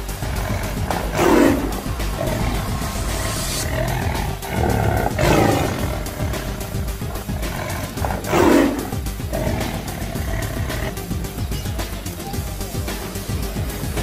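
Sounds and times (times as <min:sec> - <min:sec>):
lion roar: 0:00.0 - 0:11.1
background music with steady beat: 0:00.0 - 0:14.0.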